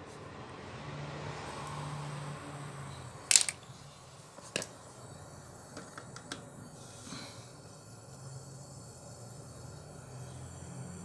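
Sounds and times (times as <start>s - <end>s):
metallic clicks of hand tools: 3.3s - 3.6s.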